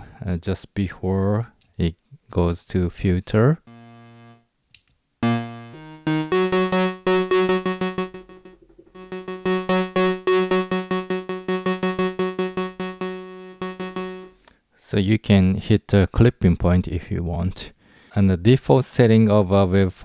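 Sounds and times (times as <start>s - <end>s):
synthesizer notes: 3.7s - 4.4s, 5.2s - 14.4s.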